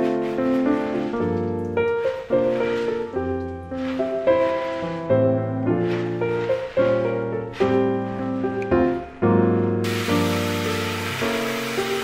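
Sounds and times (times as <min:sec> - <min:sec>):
light instrumental music: 0:00.0 - 0:12.0.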